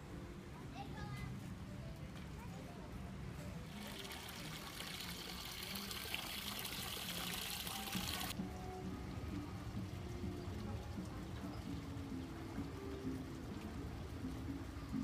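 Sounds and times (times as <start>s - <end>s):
fountain water running and splashing: 3.7s - 8.4s, 9.6s - 15.0s.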